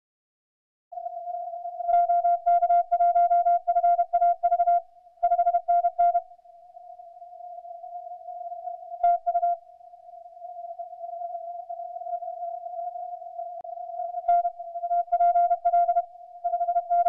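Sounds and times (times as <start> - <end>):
weak steady tone: 1.0 - 17.0.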